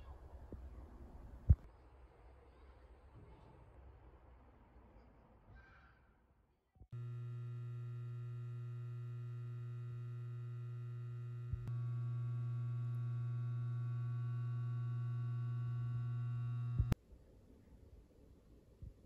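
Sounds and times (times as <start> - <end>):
low electrical hum: 6.9 - 17.0
click: 7.0 - 17.0.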